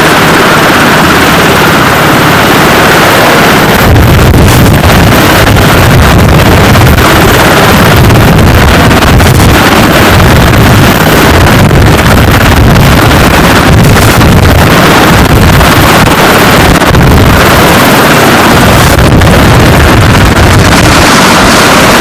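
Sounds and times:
helicopter rotor and turbine: 0:00.0 - 0:22.0
wind buffeting microphone: 0:00.0 - 0:22.0.

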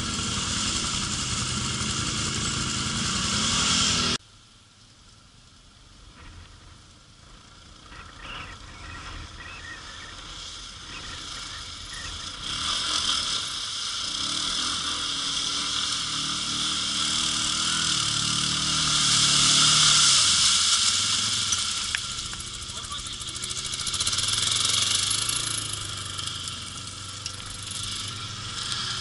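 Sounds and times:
quad engine revving: 0:00.0 - 0:04.2, 0:07.6 - 0:29.0
water splashing and spraying: 0:18.9 - 0:22.3.

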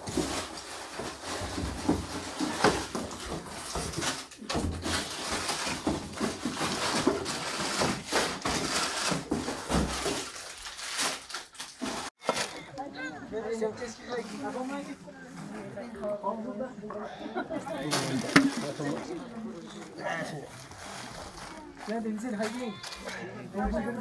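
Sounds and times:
plastic packets and boxes rustling: 0:00.0 - 0:12.9, 0:13.5 - 0:15.7, 0:17.7 - 0:24.0.

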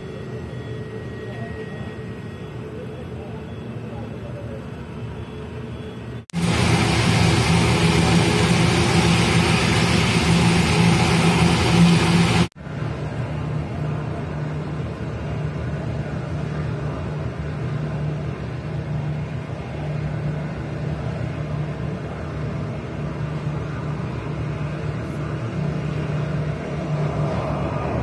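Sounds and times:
low engine hum: 0:06.4 - 0:28.0.

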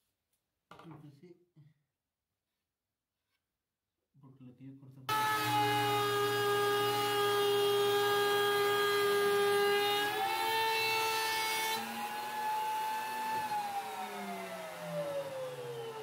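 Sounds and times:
wood router whining: 0:05.1 - 0:16.0.

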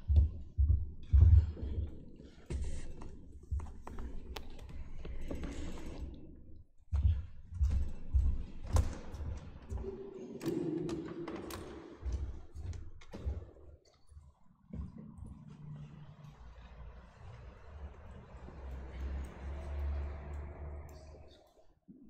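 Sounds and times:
footsteps on wooden floor: 0:00.0 - 0:10.0, 0:10.8 - 0:16.2.

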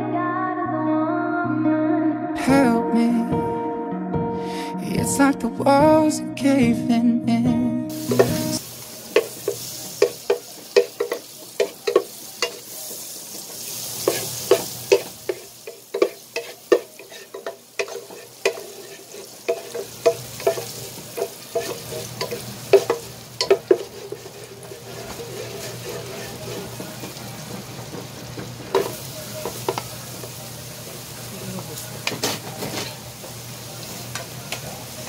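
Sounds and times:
butter sizzling in a saucepan: 0:07.9 - 0:35.0.

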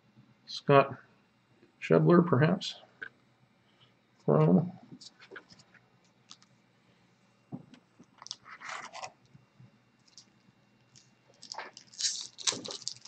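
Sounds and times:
wrapper crinkling: 0:10.0 - 0:13.0.

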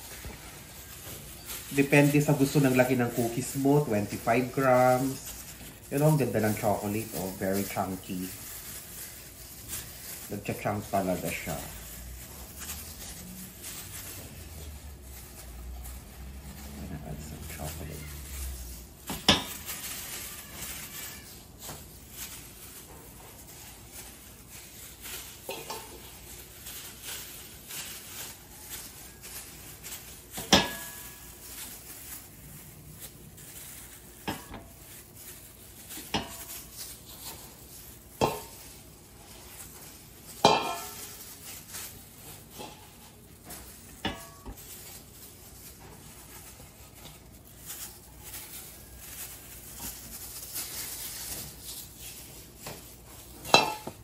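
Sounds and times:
spatula scooping dough: 0:18.0 - 0:32.2, 0:35.5 - 0:47.5
metal bowl and tray clinking: 0:25.0 - 0:31.8, 0:35.8 - 0:38.8, 0:39.4 - 0:45.0, 0:53.3 - 0:54.0.

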